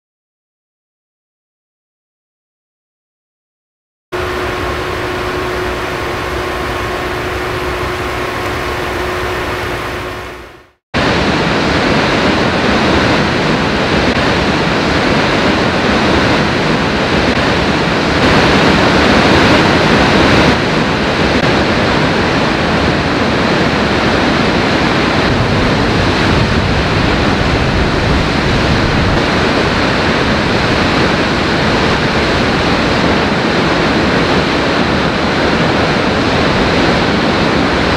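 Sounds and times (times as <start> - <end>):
faint steady hum: 4.2 - 11.2
large waterfall rushing: 4.2 - 37.9.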